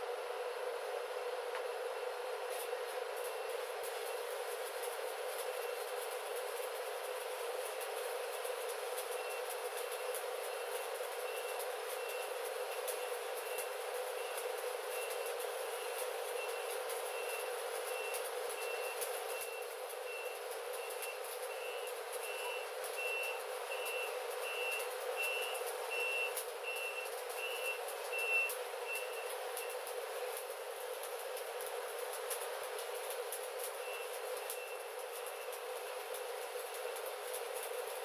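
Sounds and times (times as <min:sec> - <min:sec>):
welding arc crackling: 0:01.7 - 0:38.0
reversing alarm beeps: 0:10.5 - 0:29.8.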